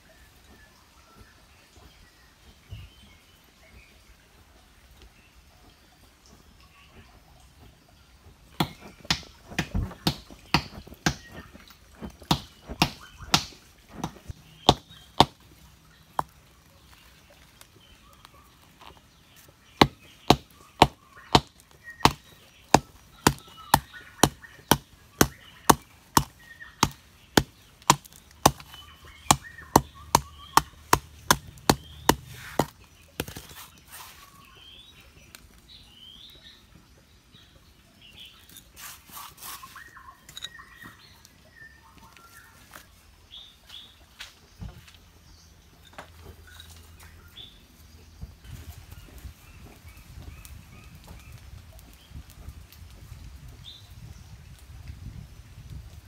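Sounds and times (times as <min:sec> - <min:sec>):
birds chirping: 0:00.0 - 0:54.5.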